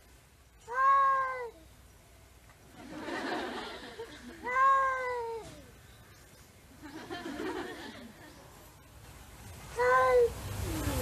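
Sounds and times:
cat meowing: 0:00.7 - 0:01.6, 0:04.4 - 0:05.6.

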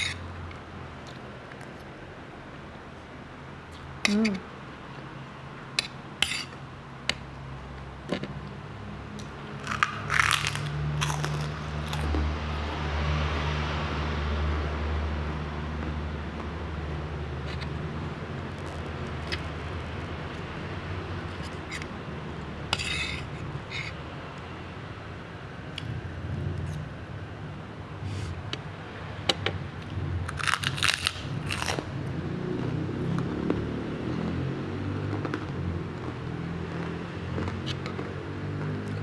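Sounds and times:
spoon scraping a plate: 0:00.0 - 0:00.2, 0:05.8 - 0:06.6, 0:22.7 - 0:24.0
low steady rumble: 0:00.0 - 0:38.3.

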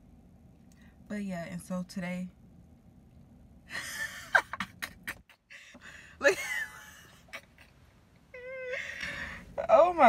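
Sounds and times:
woman laughing: 0:03.7 - 0:05.5, 0:06.2 - 0:07.8.

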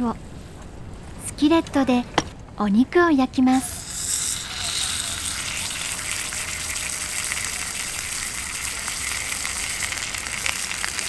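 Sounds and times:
oil popping and crackling: 0:03.7 - 0:11.0
steak sizzling in skillet: 0:03.7 - 0:11.0.

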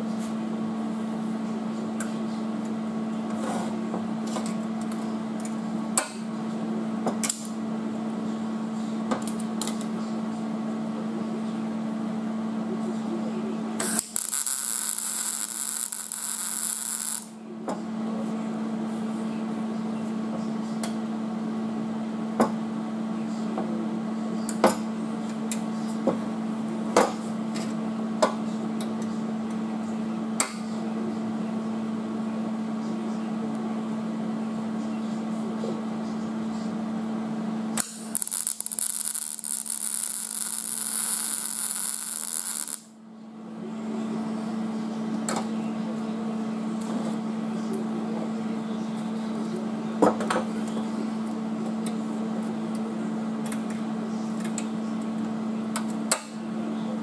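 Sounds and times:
steady hum: 0:00.0 - 0:22.0, 0:25.1 - 0:55.8
welding arc crackling hiss: 0:13.8 - 0:17.4, 0:37.8 - 0:42.9.

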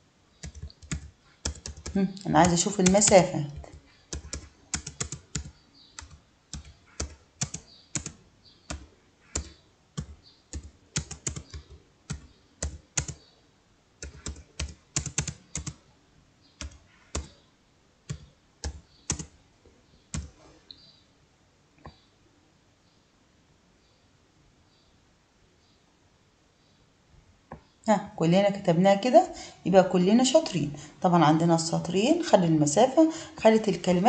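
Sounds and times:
keyboard typing: 0:00.4 - 0:13.2, 0:14.0 - 0:15.8, 0:16.6 - 0:17.4, 0:18.1 - 0:19.4, 0:20.1 - 0:20.4.

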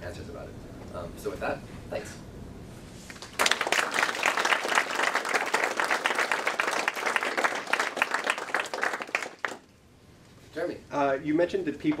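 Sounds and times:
audience applauding: 0:03.2 - 0:09.7.

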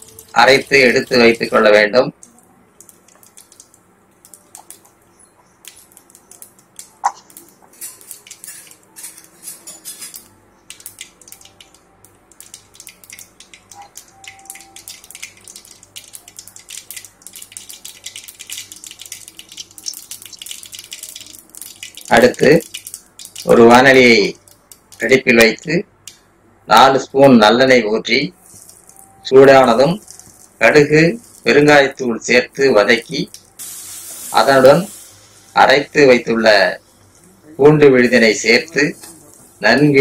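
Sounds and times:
oil crackling and popping: 0:00.0 - 0:01.6, 0:02.2 - 0:25.2, 0:28.4 - 0:31.8, 0:33.1 - 0:35.5.

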